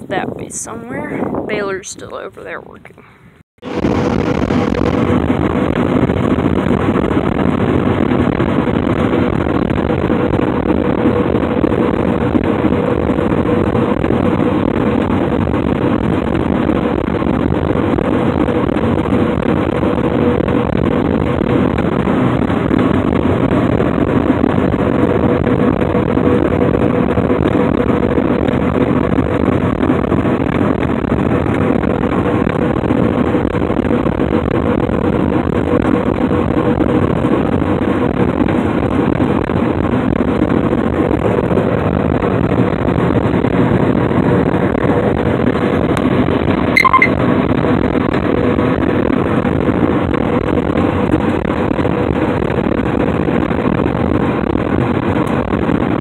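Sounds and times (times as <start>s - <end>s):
steady hum: 0.0s - 26.2s, 46.7s - 47.2s
combine harvester engine drone: 3.6s - 56.0s
short click: 46.8s - 47.1s.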